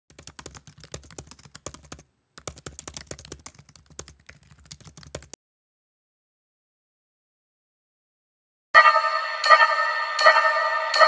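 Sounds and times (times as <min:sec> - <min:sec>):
fast typing on keyboard: 0:00.1 - 0:05.4.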